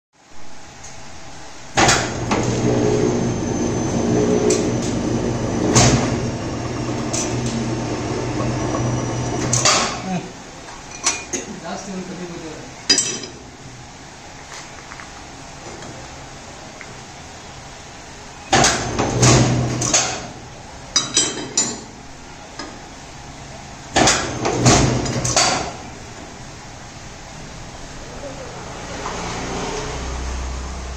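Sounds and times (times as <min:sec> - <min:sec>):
motor and gearbox humming: 0:00.8 - 0:10.4
machine clunk: 0:01.8 - 0:10.0.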